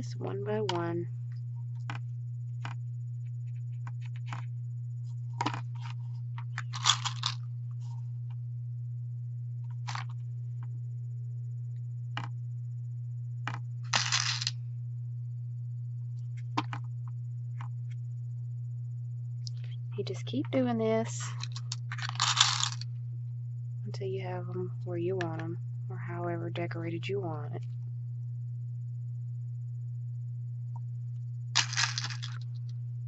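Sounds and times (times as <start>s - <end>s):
steady low hum: 0.0s - 33.0s
beads clicking: 6.6s - 7.4s, 13.9s - 14.5s, 21.4s - 22.8s, 31.6s - 32.4s.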